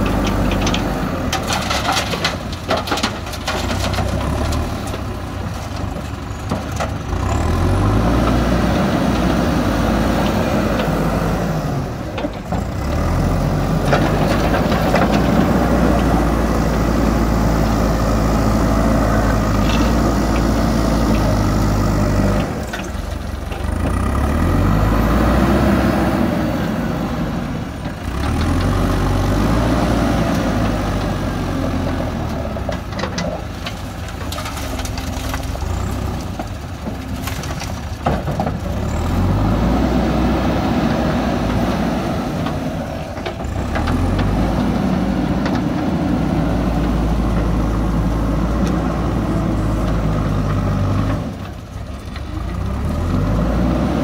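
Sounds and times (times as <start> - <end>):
diesel engine revving under load: 0.0 - 54.0.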